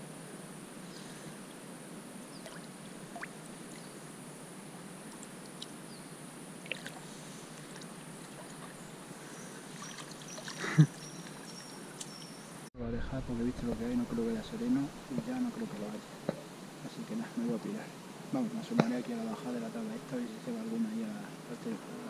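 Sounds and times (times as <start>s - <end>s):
river water lapping: 2.3s - 5.9s, 6.6s - 12.6s
small splashes: 2.4s - 3.8s, 6.6s - 8.8s, 9.4s - 12.2s.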